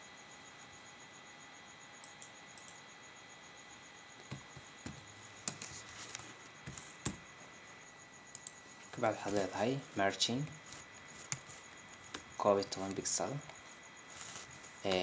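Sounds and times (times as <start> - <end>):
faint hiss with high whine: 0.0 - 15.0
computer keyboard typing: 8.3 - 9.6, 10.4 - 13.7.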